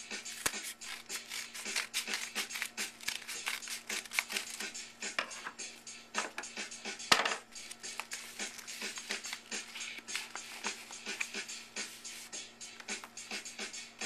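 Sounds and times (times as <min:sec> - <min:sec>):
scissors snipping: 0:00.3 - 0:04.6
paper crinkling: 0:00.4 - 0:04.6, 0:07.7 - 0:12.3.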